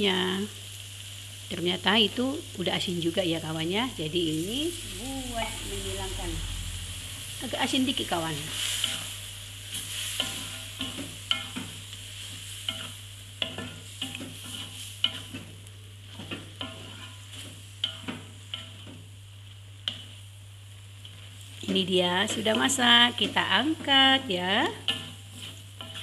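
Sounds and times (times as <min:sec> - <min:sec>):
steady sizzle: 0:00.0 - 0:26.0
spatula scraping wok: 0:04.2 - 0:19.2, 0:21.0 - 0:26.0.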